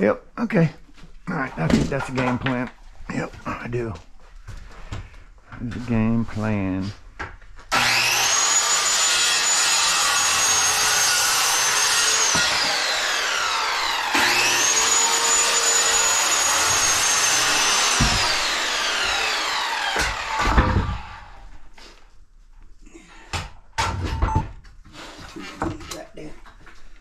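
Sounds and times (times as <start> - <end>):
circular saw cutting wood: 7.7 - 21.7.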